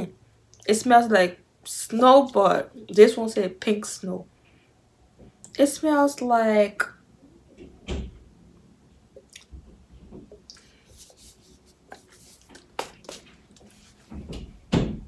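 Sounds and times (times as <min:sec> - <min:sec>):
spray bottle knocks and rustles: 0:11.9 - 0:15.0.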